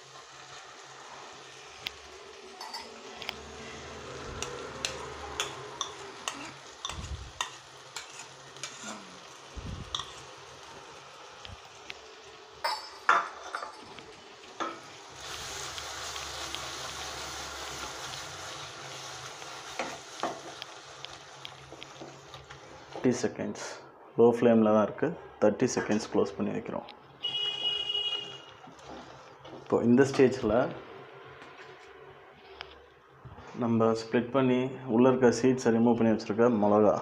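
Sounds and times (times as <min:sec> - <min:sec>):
paste sizzling in oil: 0:00.0 - 0:23.1.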